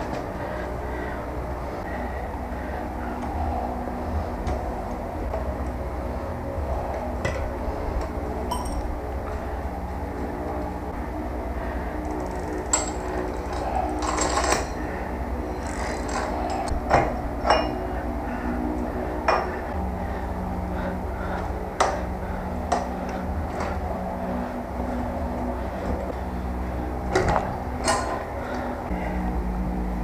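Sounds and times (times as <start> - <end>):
steady low hum: 0.0 - 30.0
small metal parts clinking: 8.5 - 9.0, 12.1 - 14.9.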